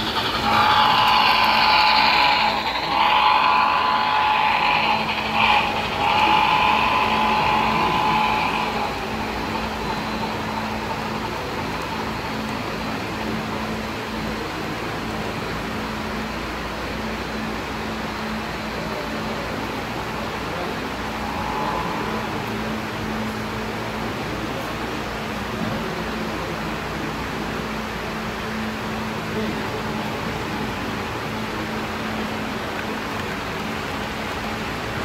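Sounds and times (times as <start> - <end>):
model locomotive horn: 0.0 - 11.2, 21.0 - 23.4
steady low hum: 0.0 - 35.0.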